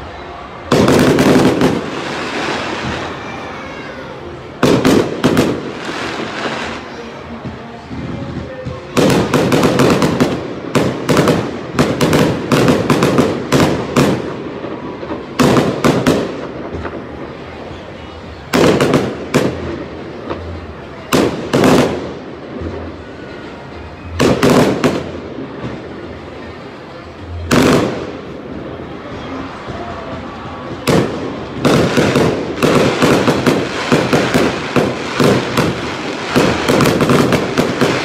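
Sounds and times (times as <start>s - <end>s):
fireworks bangs and crackles: 0.0s - 38.0s.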